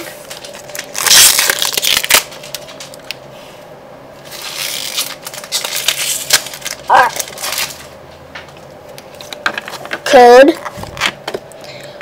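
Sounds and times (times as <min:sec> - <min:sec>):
foil wrapper tearing and crinkling: 0:00.2 - 0:03.2, 0:04.3 - 0:07.9.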